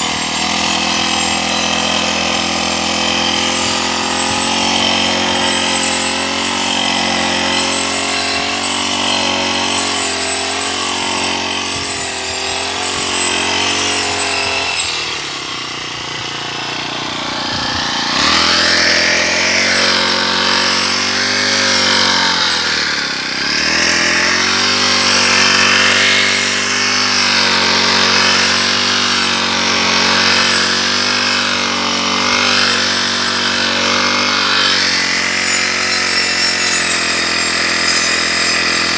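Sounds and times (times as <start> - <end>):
brush cutter engine running: 0.0 - 38.9.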